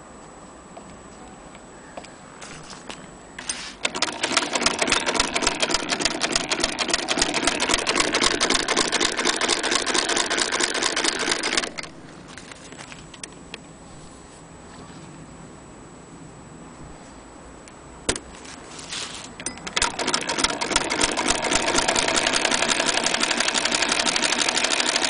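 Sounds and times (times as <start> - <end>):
sewing machine clatter: 3.4 - 12.1, 19.6 - 25.0.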